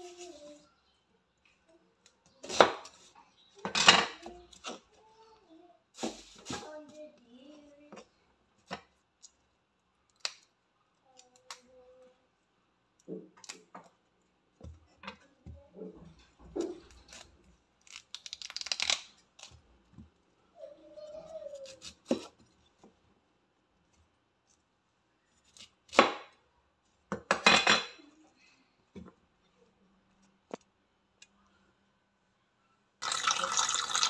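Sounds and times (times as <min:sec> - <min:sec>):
cauliflower crunching and tearing: 0:17.1 - 0:19.5.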